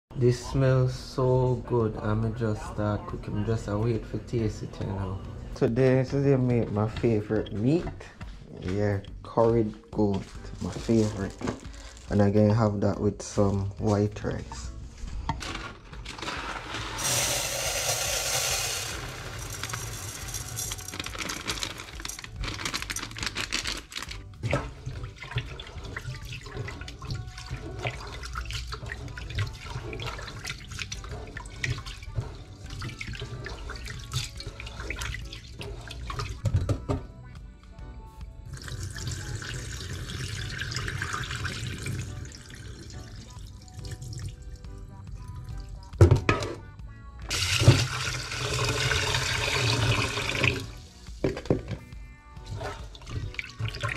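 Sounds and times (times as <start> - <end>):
water poured into sink drain: 16.1 - 23.4, 24.0 - 36.4, 38.6 - 44.4, 47.3 - 51.6, 52.5 - 53.9
tap water running into saucepan: 16.2 - 22.5, 24.3 - 37.0, 38.6 - 44.7, 47.3 - 51.8, 52.5 - 53.9.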